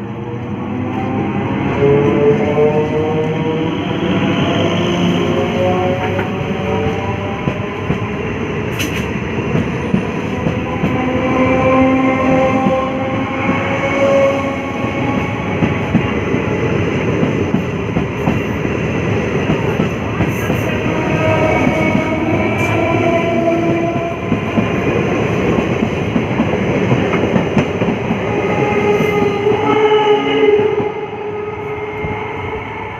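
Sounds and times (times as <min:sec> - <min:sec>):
train wheels rattling over rails: 0:05.1 - 0:29.9.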